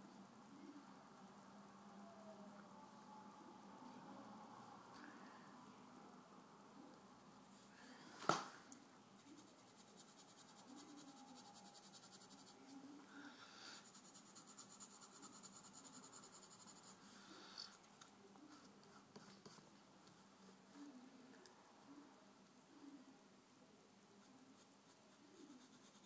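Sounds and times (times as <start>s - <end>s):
faint low hum: 0.0s - 26.0s
pencil scratching on paper: 9.2s - 12.8s, 13.8s - 17.0s, 24.3s - 26.0s.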